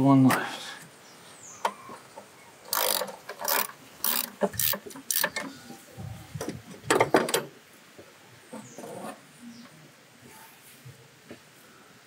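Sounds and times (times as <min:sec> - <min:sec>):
socket ratchet clicking: 0:02.7 - 0:05.4.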